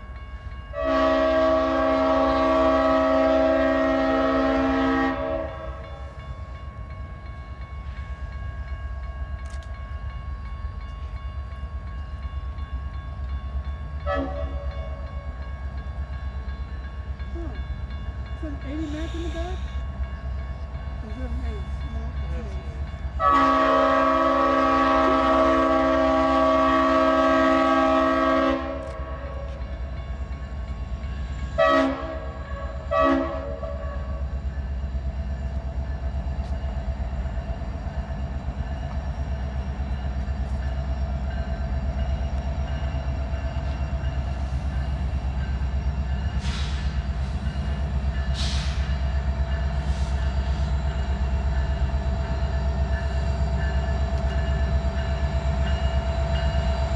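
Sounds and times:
locomotive engine rumble: 0:00.0 - 0:56.9
locomotive air horn blasts: 0:00.8 - 0:05.8, 0:14.0 - 0:15.0, 0:23.2 - 0:29.5, 0:31.6 - 0:34.2.

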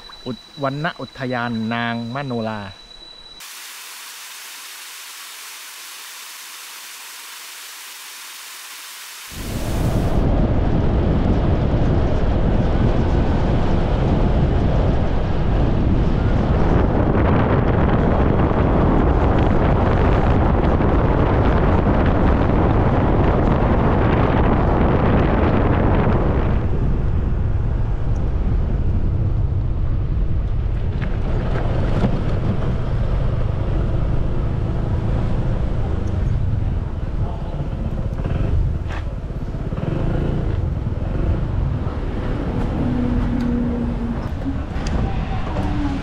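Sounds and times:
road noise: 0:00.0 - 0:03.5, 0:06.9 - 0:46.0
wind rushing over microphone: 0:09.2 - 0:46.0.

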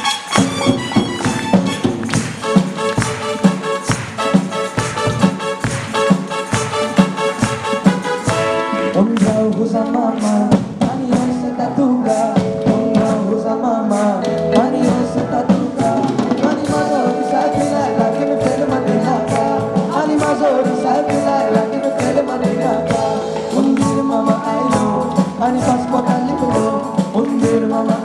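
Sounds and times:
live pop band playing: 0:00.0 - 0:28.0
boys singing into microphones: 0:09.0 - 0:28.0.

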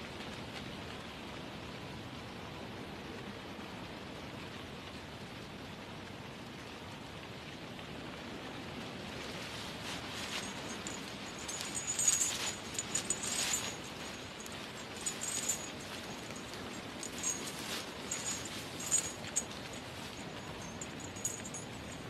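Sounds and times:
footsteps crunching dry leaves: 0:09.6 - 0:21.7.

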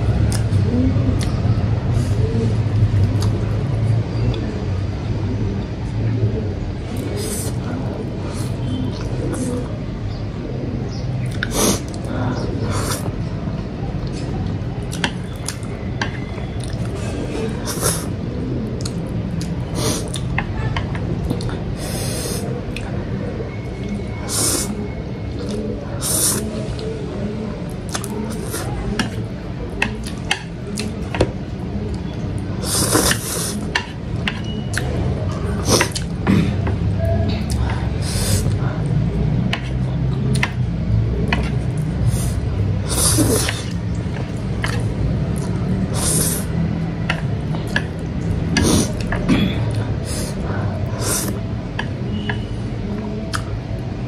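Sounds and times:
steady low background noise: 0:00.0 - 0:54.0
person slurping noodles: 0:32.6 - 0:33.6, 0:42.1 - 0:43.8, 0:45.8 - 0:46.5, 0:48.5 - 0:51.4
chewing and mouth smacks: 0:53.3 - 0:53.6.

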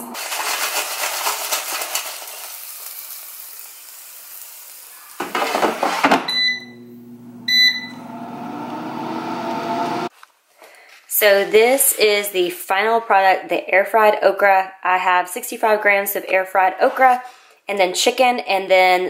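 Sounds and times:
fan motor humming: 0:06.7 - 0:10.1
short beeps from touch panel: 0:07.5 - 0:08.0.

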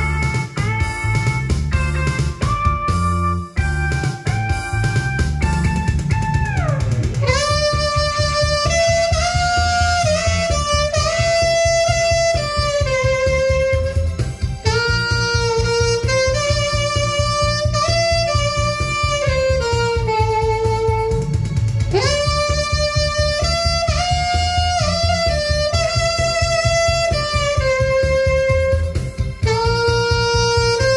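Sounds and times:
backing track with steady beat: 0:00.0 - 0:30.9
saxophone playing slow melody: 0:07.2 - 0:30.9.

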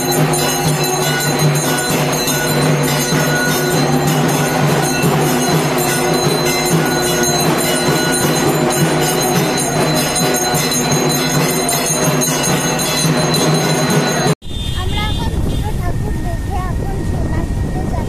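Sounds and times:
bells ringing quickly: 0:00.0 - 0:14.4
music: 0:00.0 - 0:14.4.

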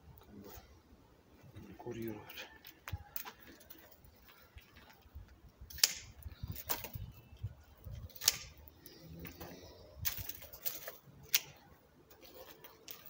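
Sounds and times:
pruning shears snipping branches: 0:05.7 - 0:07.0, 0:08.0 - 0:13.0.

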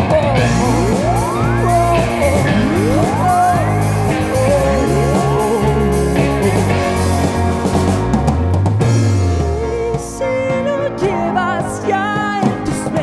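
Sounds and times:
live rock band playing: 0:00.0 - 0:13.0
rising pitch glide: 0:00.4 - 0:10.0.

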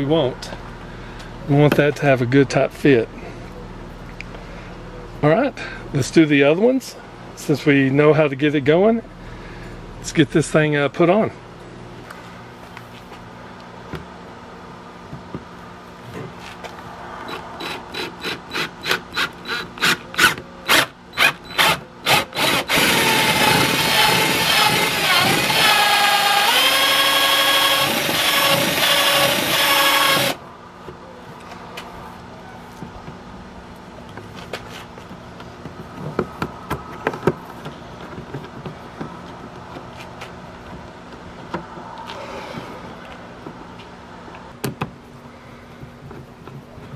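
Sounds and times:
low background hum: 0:00.0 - 0:46.9
drill boring into plastic: 0:17.3 - 0:30.4.

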